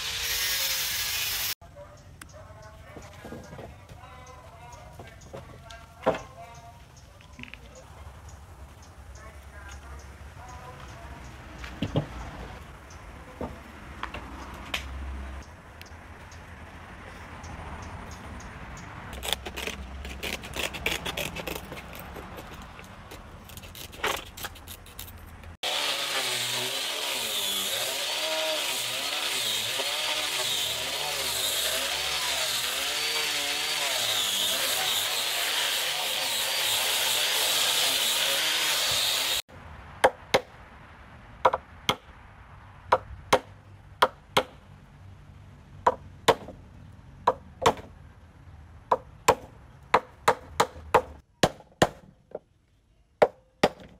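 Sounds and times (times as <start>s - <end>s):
power sander on wood: 0.0s - 1.6s, 25.6s - 39.4s
scissors snipping sandpaper: 19.2s - 25.5s.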